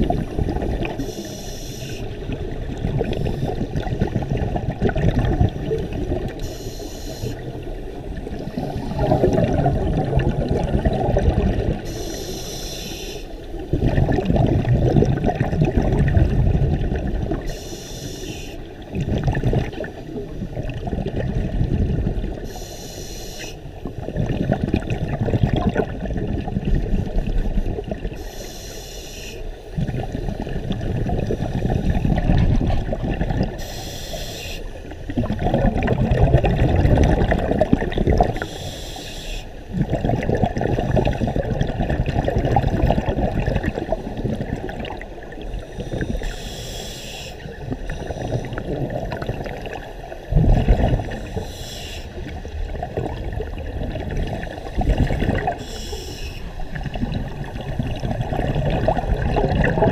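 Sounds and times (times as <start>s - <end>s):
exhaled bubbles gurgling: 0.0s - 59.9s
regulator inhalation hiss: 1.0s - 2.1s, 6.4s - 7.4s, 11.8s - 13.4s, 17.5s - 18.7s, 22.4s - 23.7s, 28.2s - 29.5s, 33.6s - 34.8s, 38.4s - 39.6s, 45.7s - 47.4s, 51.2s - 52.2s, 55.6s - 56.6s.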